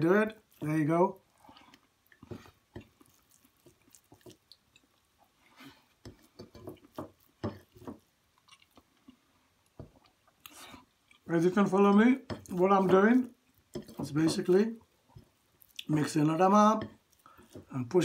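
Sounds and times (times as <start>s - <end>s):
chewing: 1.3s - 11.3s, 15.2s - 16.0s, 16.9s - 17.7s
fingers squishing rice: 1.6s - 5.0s.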